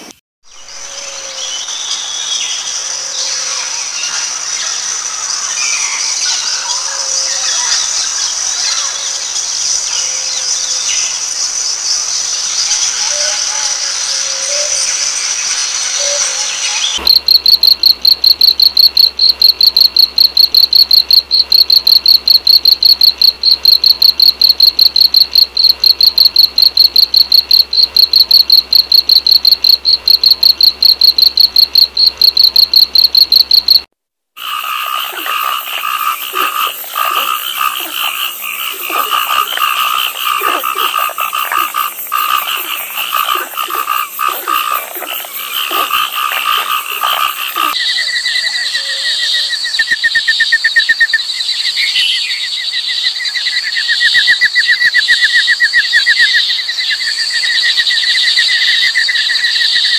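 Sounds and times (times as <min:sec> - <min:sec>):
fast high-pitched chirping: 0:17.0 - 0:33.9.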